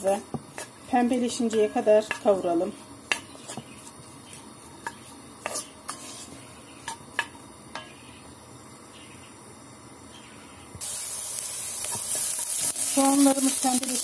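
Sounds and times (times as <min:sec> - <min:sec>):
spoon stirring onions in oil: 0:00.0 - 0:08.2, 0:10.8 - 0:14.0
spoon knocking and scraping pot: 0:04.8 - 0:08.0.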